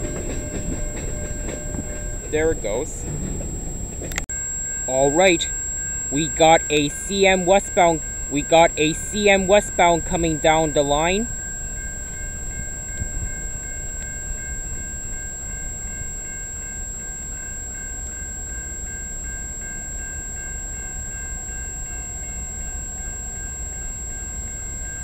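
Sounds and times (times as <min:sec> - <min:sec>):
diesel locomotive rumble: 0:00.0 - 0:25.0
high ringing with faint beat: 0:00.0 - 0:25.0.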